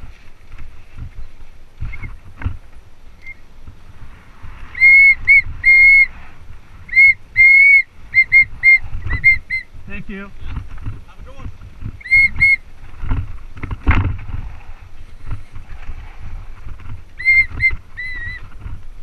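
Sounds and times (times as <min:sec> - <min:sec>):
trail rumble: 0:00.0 - 0:19.0
wind noise: 0:00.0 - 0:19.0
bike brakes squealing: 0:04.7 - 0:06.1, 0:06.9 - 0:09.7, 0:12.0 - 0:12.6, 0:17.2 - 0:18.5.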